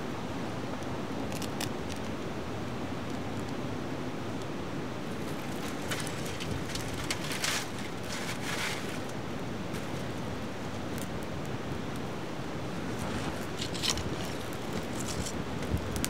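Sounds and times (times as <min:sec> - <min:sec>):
twigs crackling in fire: 0:05.1 - 0:16.0.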